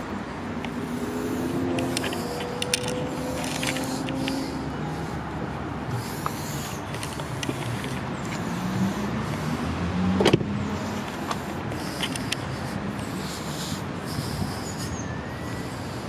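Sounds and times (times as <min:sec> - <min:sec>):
motor vehicle low hum: 0:00.0 - 0:15.6.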